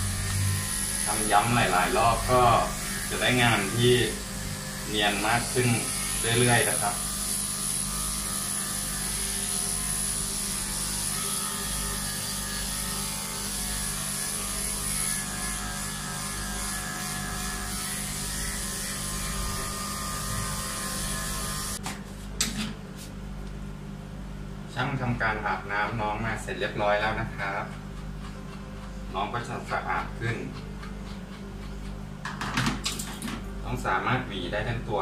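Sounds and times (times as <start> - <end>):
electric hair clipper humming: 0.0 - 22.0.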